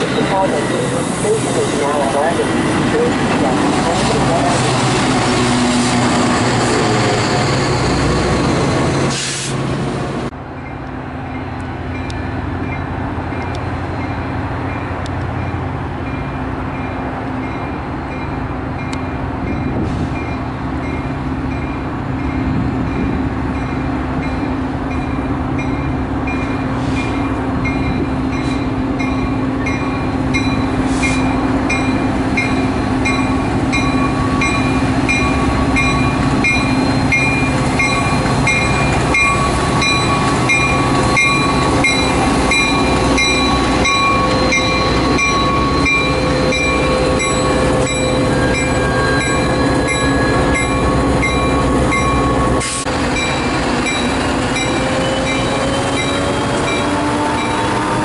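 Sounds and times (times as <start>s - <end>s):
train rumbling: 0.0s - 58.0s.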